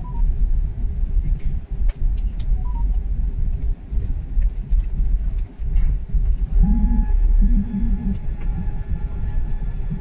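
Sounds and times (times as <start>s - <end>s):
rumble of engines and wheels: 0.0s - 10.0s.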